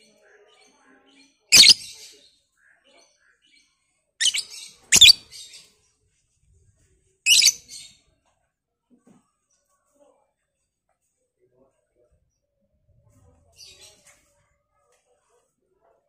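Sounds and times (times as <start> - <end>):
bird giving high-pitched calls: 1.6 - 1.9, 4.2 - 5.2, 7.3 - 7.6.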